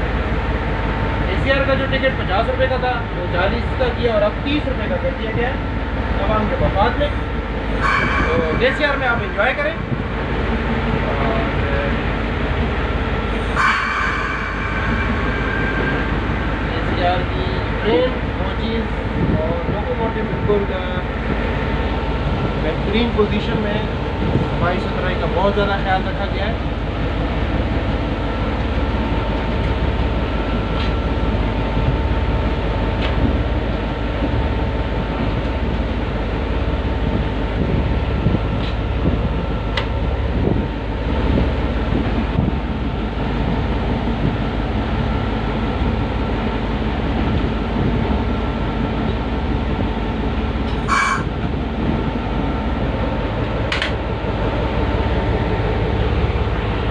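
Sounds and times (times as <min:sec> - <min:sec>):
diesel locomotive rumble: 0:00.0 - 0:56.9
sharp high-pitched noise: 0:07.8 - 0:10.3, 0:13.4 - 0:17.9, 0:50.9 - 0:51.3.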